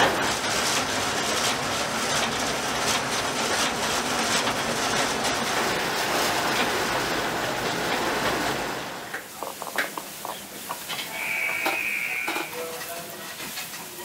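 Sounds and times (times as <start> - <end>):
scattered clicks and knocks: 0.0 - 5.6, 9.1 - 14.0
locomotive running on track: 0.0 - 14.0
short high tone: 11.1 - 12.7.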